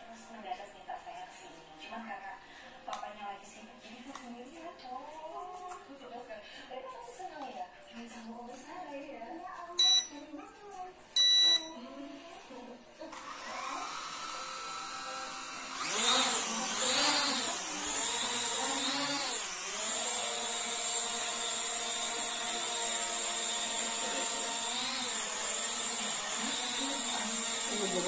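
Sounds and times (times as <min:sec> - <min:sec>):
toy quadcopter motors whining: 0:13.2 - 0:28.0.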